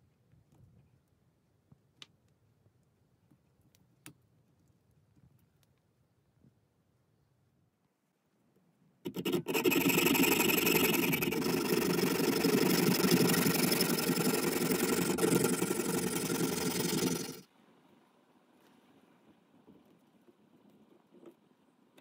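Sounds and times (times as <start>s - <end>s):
hand saw cutting metal tubing: 9.1s - 17.4s.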